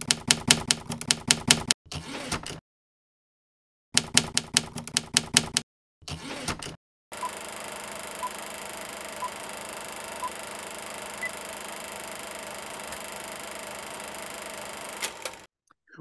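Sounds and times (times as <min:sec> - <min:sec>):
typewriter keys clacking: 0:00.0 - 0:01.7, 0:04.0 - 0:05.6
typewriter carriage rasping sweep: 0:07.2 - 0:15.5.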